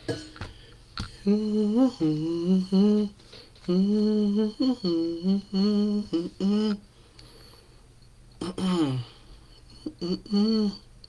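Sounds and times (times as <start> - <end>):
person humming a slow melody: 1.1 - 6.9, 8.4 - 11.0.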